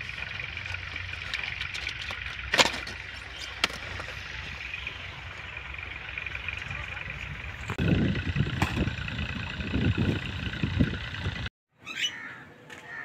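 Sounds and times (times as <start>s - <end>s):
wind buffeting microphone: 6.4s - 11.5s.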